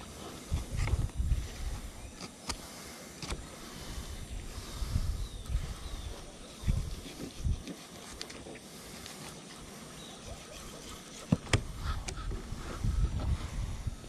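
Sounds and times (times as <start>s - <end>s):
sharp clicks: 2.2s - 3.5s.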